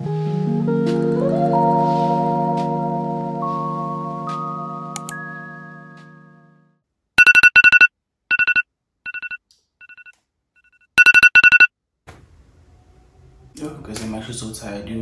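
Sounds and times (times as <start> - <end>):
electronic alarm beeping: 7.2 - 10.1, 11.0 - 11.7.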